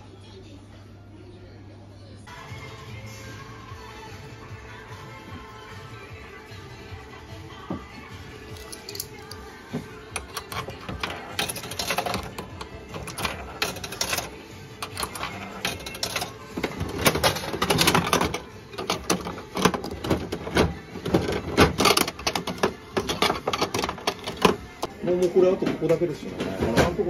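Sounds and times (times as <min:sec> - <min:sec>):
coins dropping into machine: 0:08.5 - 0:09.4, 0:10.1 - 0:24.9.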